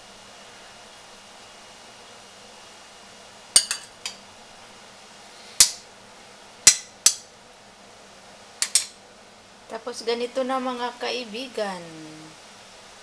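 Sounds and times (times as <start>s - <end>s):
metal spoon clinking on plate: 3.6s - 4.2s, 8.6s - 9.0s.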